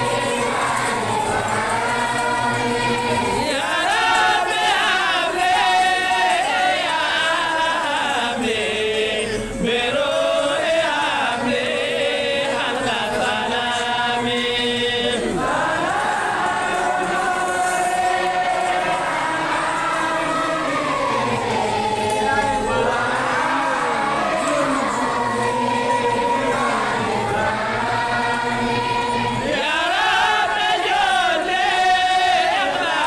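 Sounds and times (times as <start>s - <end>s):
group of voices chanting: 0.0s - 33.0s.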